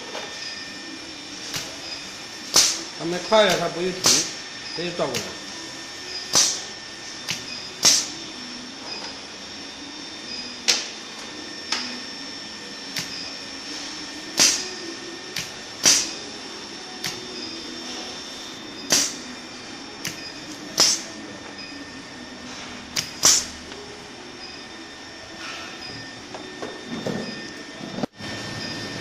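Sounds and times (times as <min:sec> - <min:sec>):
electrical hum with high whine: 0:00.0 - 0:29.0.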